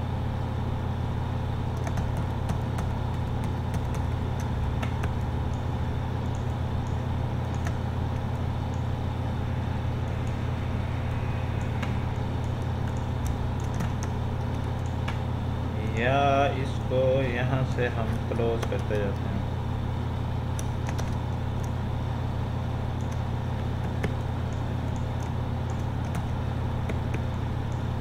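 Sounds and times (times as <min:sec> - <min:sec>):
steady low hum: 0:00.0 - 0:28.0
computer mouse clicks: 0:06.2 - 0:08.9, 0:11.6 - 0:15.2, 0:20.6 - 0:21.7.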